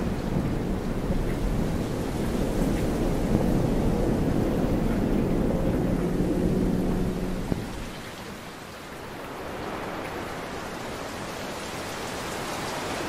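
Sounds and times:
thunder rumbling: 0.0 - 8.4
steady rain hiss: 0.0 - 13.0.

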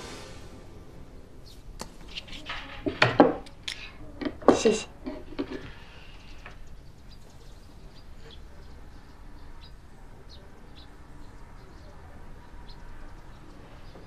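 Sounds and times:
faint bird chirps: 5.7 - 14.0.

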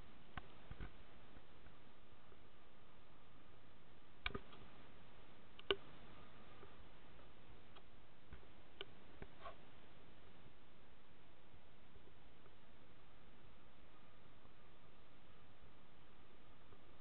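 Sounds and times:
steady low hiss: 0.0 - 17.0
sharp clicks: 5.6 - 5.9.

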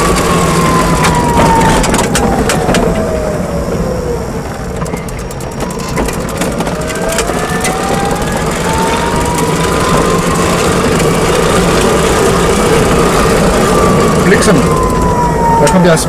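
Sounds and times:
electric motor whine: 5.4 - 16.0.

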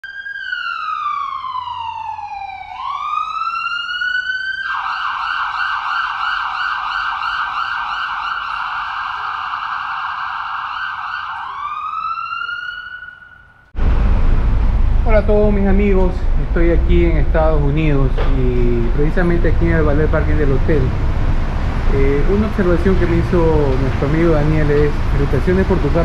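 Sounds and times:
electronic police siren: 0.0 - 13.7.

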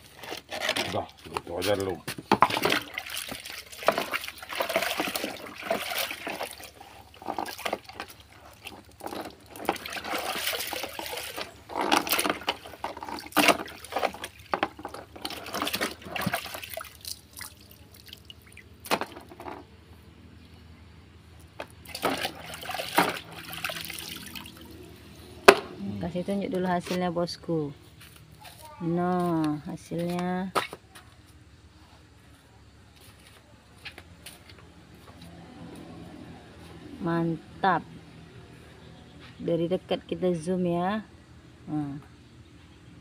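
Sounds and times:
water splashing in plastic bucket: 0.6 - 19.5, 21.8 - 24.7.

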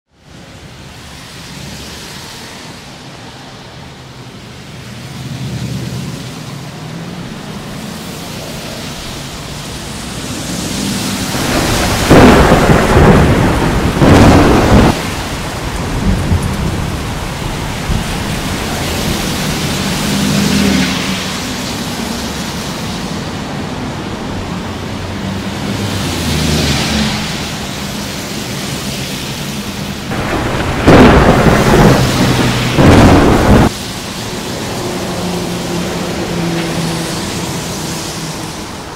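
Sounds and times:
steady rain: 0.1 - 38.9
thunder crashes and rumbles: 10.2 - 21.4, 30.0 - 34.0.

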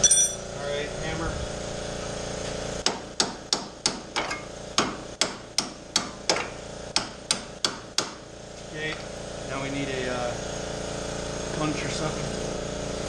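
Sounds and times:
hammer striking metal: 0.0 - 0.4, 2.8 - 8.2
steady background hum: 0.0 - 13.0.

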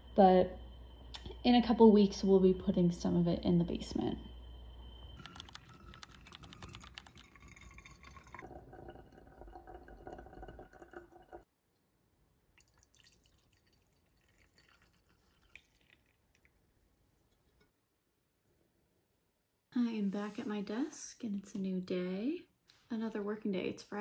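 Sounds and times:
coffee poured into ceramic mug: 5.2 - 11.4, 12.6 - 16.6
coffee trickling into carafe: 5.2 - 11.5, 12.6 - 16.6.

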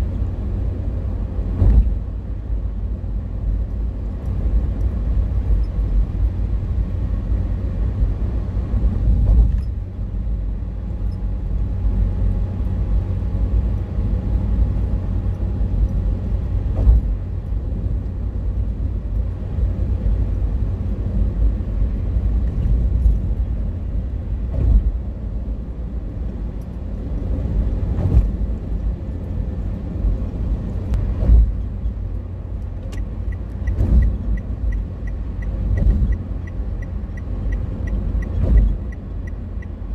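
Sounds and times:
car road rumble: 0.0 - 39.9
light regular ticking: 32.1 - 39.9.

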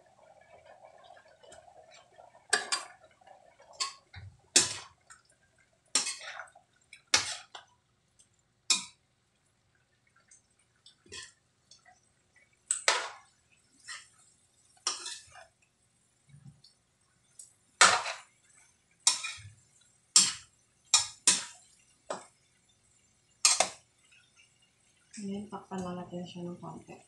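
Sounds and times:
metal spatula scraping a wok: 4.6 - 5.0, 6.0 - 6.5, 7.1 - 7.6, 14.8 - 15.5, 17.8 - 18.3, 19.0 - 19.6, 20.2 - 21.6, 23.4 - 23.8.

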